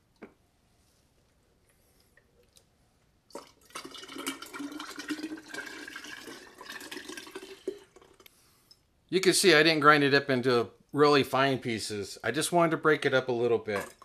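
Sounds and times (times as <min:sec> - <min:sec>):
liquid pouring through funnel: 0:03.3 - 0:08.3.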